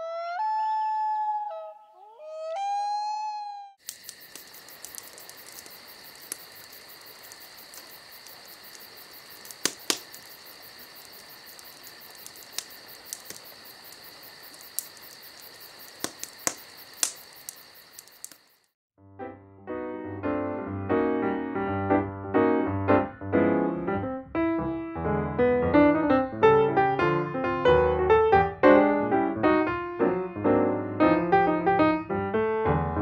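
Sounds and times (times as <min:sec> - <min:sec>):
campfire crackling and popping: 0:03.8 - 0:18.7
piano music: 0:19.0 - 0:33.0.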